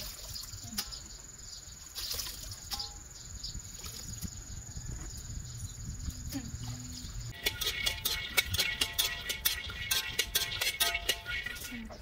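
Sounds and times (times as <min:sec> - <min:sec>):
water splashing and dripping: 0:00.0 - 0:01.1, 0:01.8 - 0:03.0, 0:03.6 - 0:04.3, 0:06.6 - 0:12.0.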